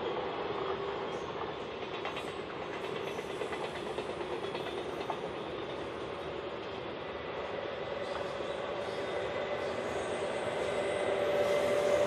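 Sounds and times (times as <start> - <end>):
electric train hum: 0.0 - 12.0
wheels clicking over rail joints: 0.7 - 6.9.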